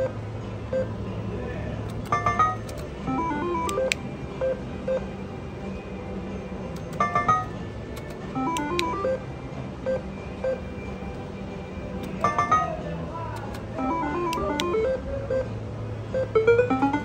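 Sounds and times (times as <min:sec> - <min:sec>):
slot machine beeping: 0:00.0 - 0:00.9, 0:02.0 - 0:05.2, 0:06.7 - 0:10.8, 0:11.9 - 0:13.0, 0:13.6 - 0:17.0
button clicks: 0:03.6 - 0:04.0, 0:06.8 - 0:09.0, 0:12.0 - 0:12.7, 0:13.4 - 0:14.8.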